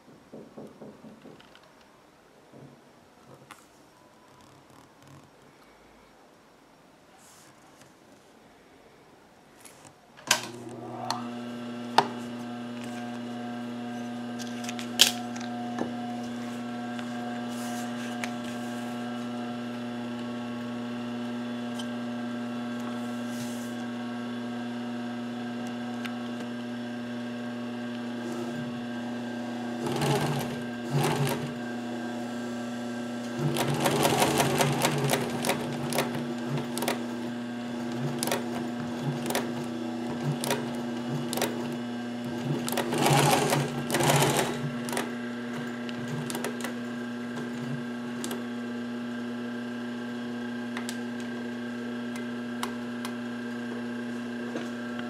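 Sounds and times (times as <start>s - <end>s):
sewing machine motor humming: 10.2s - 55.0s
rapid machine stitching: 23.8s - 53.1s.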